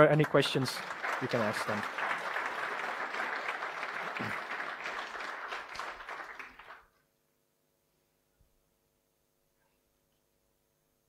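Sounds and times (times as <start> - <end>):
audience applauding: 0.0 - 6.9.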